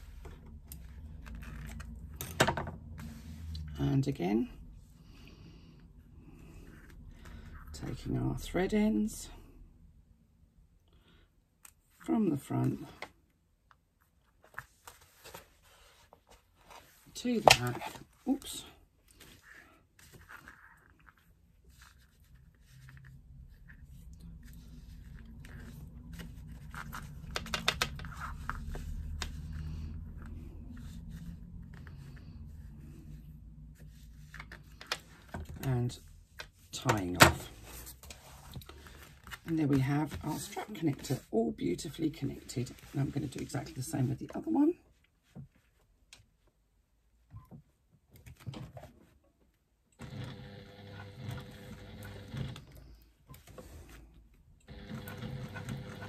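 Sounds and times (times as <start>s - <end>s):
electric sewing machine running: 50.0s - 52.7s, 54.7s - 56.0s.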